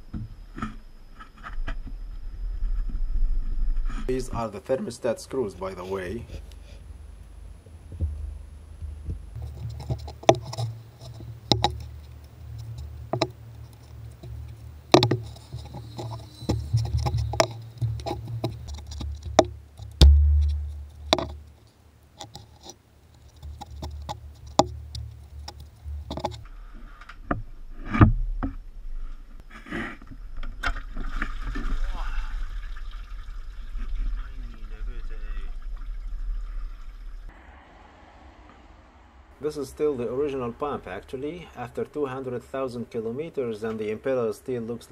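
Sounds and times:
low rumble: 0:05.5 - 0:21.6, 0:32.2 - 0:42.3
heavy thump: 0:19.1 - 0:21.4.

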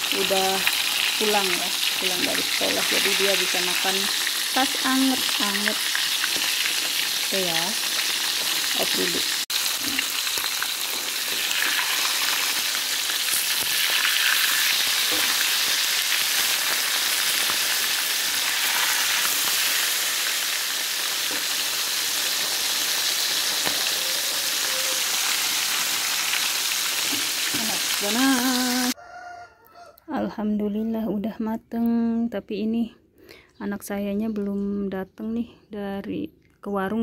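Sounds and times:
fish sizzling in hot oil: 0:00.0 - 0:29.0.

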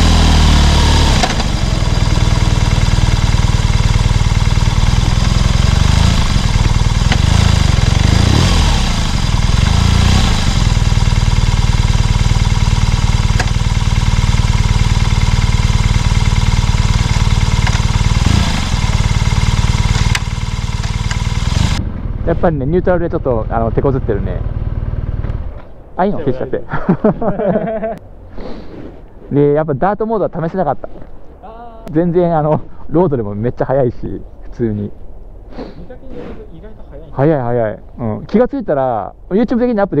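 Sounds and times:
motorcycle engine idling: 0:00.0 - 0:25.6.

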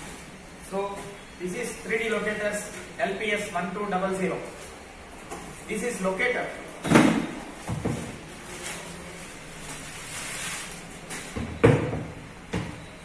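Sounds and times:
plastic wrapping rustling: 0:07.5 - 0:11.3.

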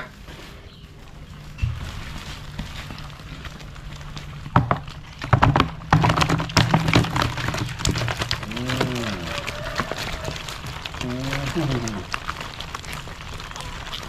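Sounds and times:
fish flopping and slapping: 0:01.5 - 0:14.0.

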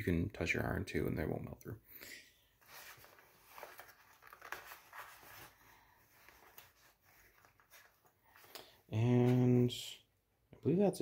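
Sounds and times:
cables rustling against fabric: 0:02.6 - 0:09.7.

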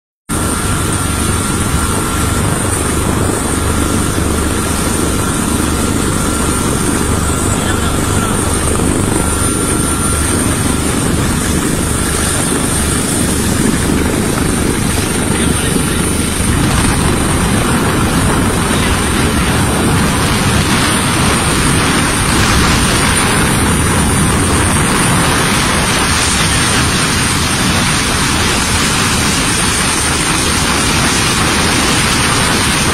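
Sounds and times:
helicopter rotor and engine: 0:00.3 - 0:32.9
high-pitched whine: 0:00.3 - 0:32.9.

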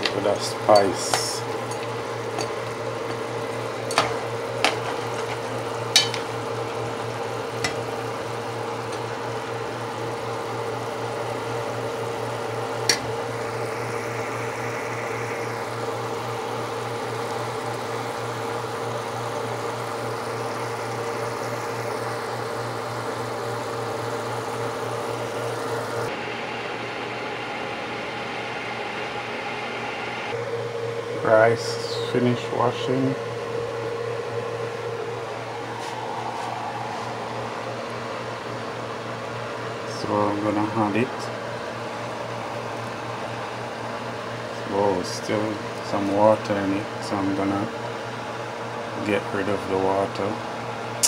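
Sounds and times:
pot simmering: 0:00.0 - 0:26.1
steady mechanical hum: 0:00.0 - 0:51.0
metal ladle clinking pot: 0:06.0 - 0:06.3.

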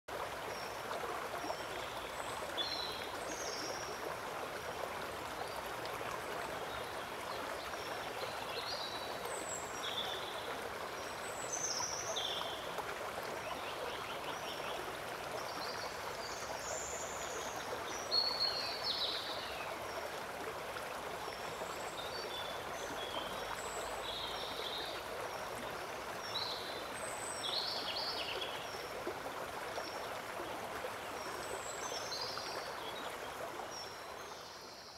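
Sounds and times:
running water rushing: 0:00.1 - 0:34.7.

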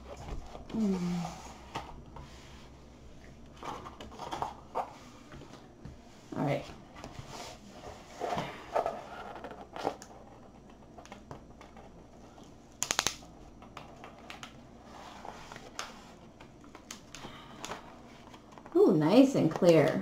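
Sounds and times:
sharp plastic crackles: 0:12.8 - 0:14.6.

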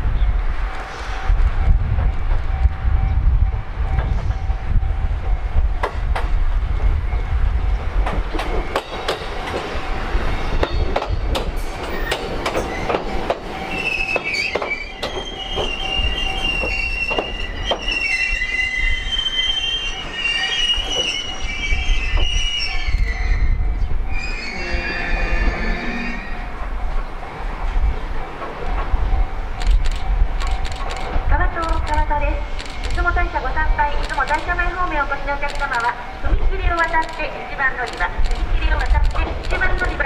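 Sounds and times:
low train rumble: 0:00.0 - 0:40.0
train wheels clicking over rail joints: 0:08.0 - 0:18.1, 0:27.7 - 0:33.1, 0:34.0 - 0:34.8, 0:35.4 - 0:40.0
train wheels squealing: 0:08.4 - 0:26.6.

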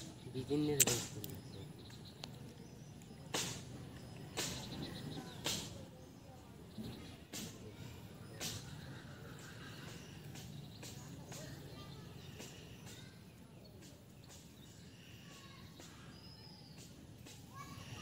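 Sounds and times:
short ticks and small chirps: 0:00.8 - 0:03.4.

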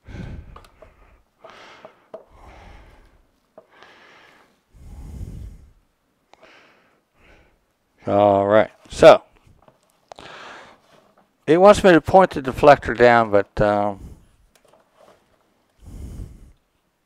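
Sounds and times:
soft breaths: 0:00.0 - 0:08.2, 0:09.3 - 0:11.4, 0:13.8 - 0:17.0
plastic parts clicking and knocking: 0:00.5 - 0:02.3, 0:14.5 - 0:15.1.

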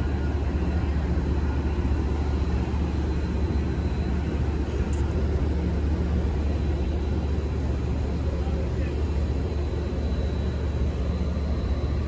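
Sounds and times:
faint high whine: 0:00.0 - 0:12.0
idling train low drone: 0:00.0 - 0:12.0.

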